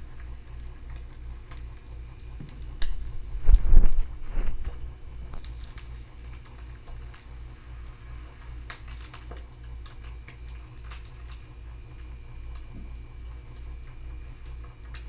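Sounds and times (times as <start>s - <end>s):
low pulsing hum: 0.0s - 15.0s
oil popping and crackling: 0.0s - 15.0s.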